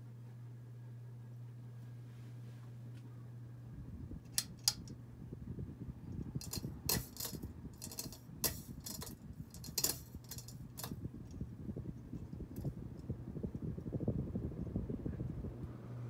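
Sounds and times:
ceiling fan motor hum: 0:00.0 - 0:16.0
wind buffeting microphone: 0:03.6 - 0:16.0
sharp clicks and metallic rattles: 0:04.3 - 0:04.9, 0:06.4 - 0:11.0.

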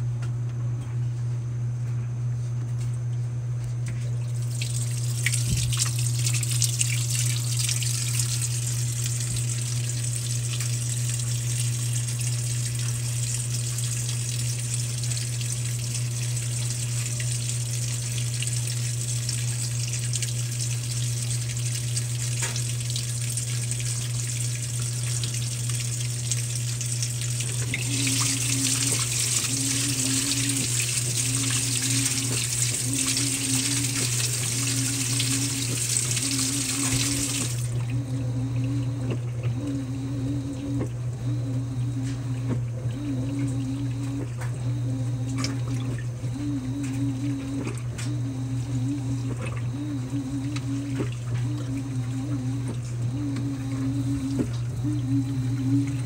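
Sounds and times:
washing machine motor churning: 0:00.0 - 0:56.0
water pouring into drum: 0:04.3 - 0:39.4
low hum: 0:27.4 - 0:56.0.

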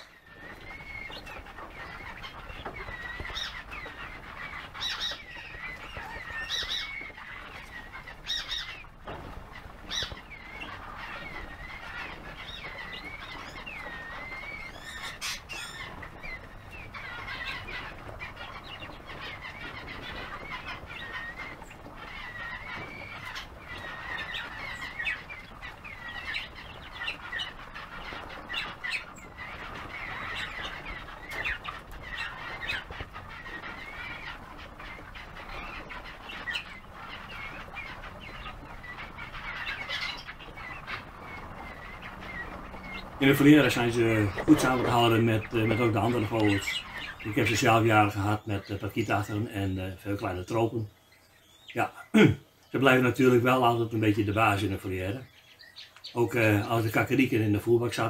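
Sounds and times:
sharp taps and rustles: 0:00.0 - 0:47.9
chicks peeping: 0:00.0 - 0:58.0.

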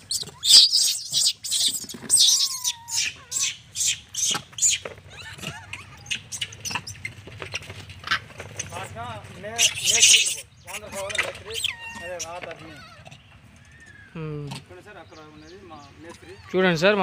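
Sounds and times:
monkeys squeaking and screeching: 0:00.0 - 0:17.0
whistle-like monkey call: 0:00.1 - 0:07.0.

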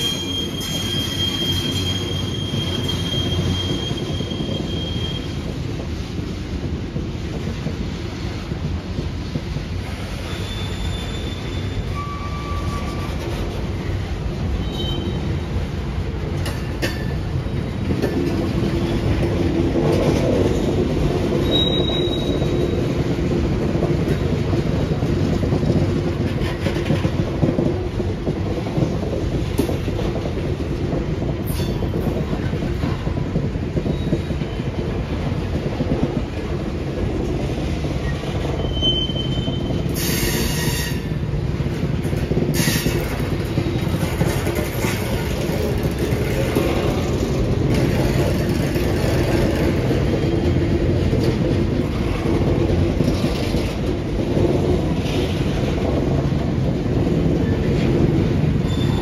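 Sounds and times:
train wheel squeals: 0:00.0 - 0:05.8, 0:09.8 - 0:15.6, 0:16.4 - 0:27.5, 0:31.3 - 0:36.0, 0:37.8 - 0:41.6, 0:42.2 - 0:54.0, 0:57.1 - 0:59.0
rumble of rolling freight cars: 0:00.0 - 0:59.0.

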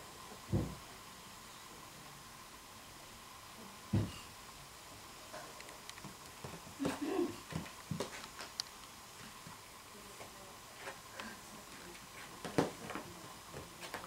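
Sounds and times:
kittens' paws tapping on mats: 0:05.9 - 0:09.6, 0:10.2 - 0:14.0.

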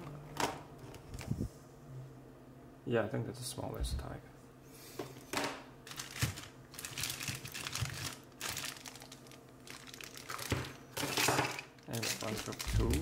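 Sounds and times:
plastic bag crinkling: 0:05.8 - 0:13.0.

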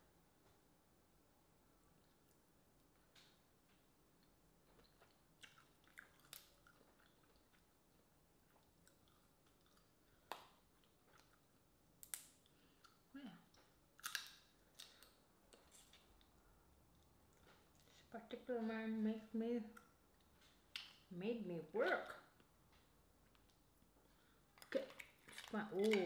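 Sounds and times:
chewing: 0:01.8 - 0:18.1, 0:23.2 - 0:26.0
crawfish shells cracking: 0:14.0 - 0:16.1.

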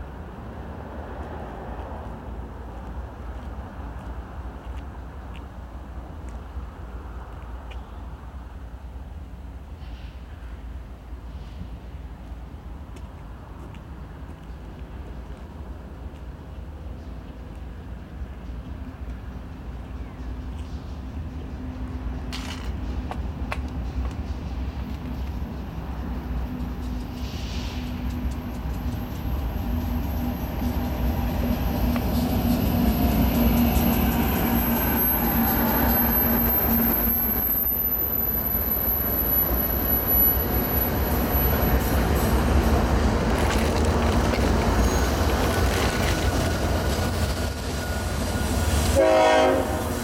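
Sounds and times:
diesel locomotive engines humming: 0:00.0 - 0:50.0
train wheels rumbling on rails: 0:00.0 - 0:50.0
rapid clicks of train wheels: 0:12.9 - 0:38.4, 0:39.2 - 0:48.0.

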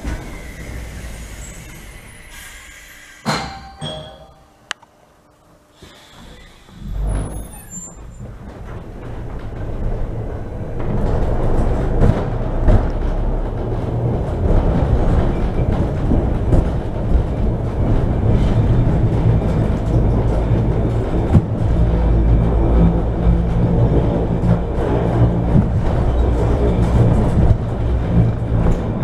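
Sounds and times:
railway car rumble and motor hum: 0:00.0 - 0:29.0
sharp knocks: 0:03.2 - 0:04.4.

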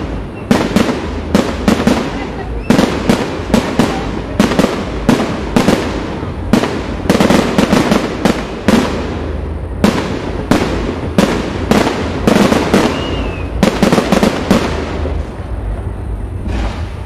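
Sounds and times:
firework shell bursts echoing: 0:16.4 - 0:17.0.

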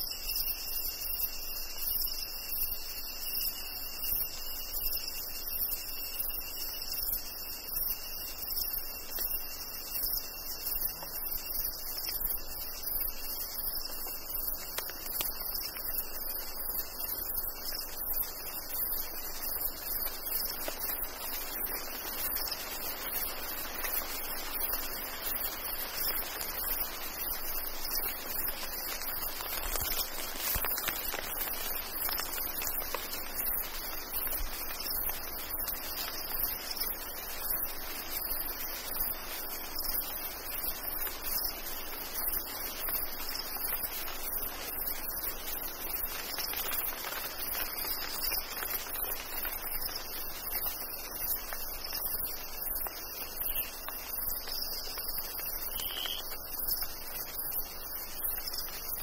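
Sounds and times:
crickets and cicadas shrilling: 0:00.0 - 0:59.0
light rain hissing: 0:00.0 - 0:59.0
water dripping: 0:11.9 - 0:37.8.

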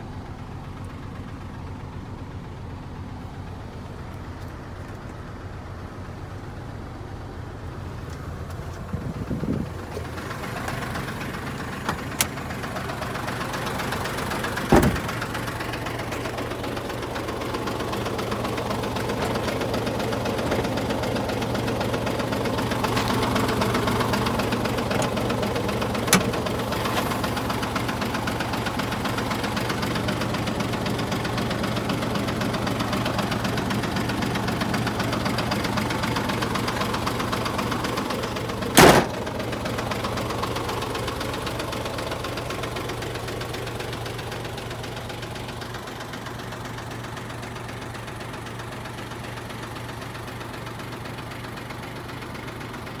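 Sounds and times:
diesel engine idling clatter: 0:00.0 - 0:53.0
sharp knock: 0:14.7 - 0:15.0.

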